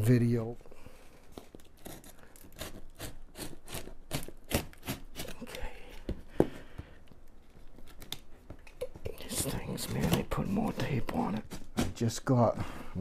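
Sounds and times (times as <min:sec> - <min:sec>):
knife cutting packing tape: 0:01.7 - 0:05.6.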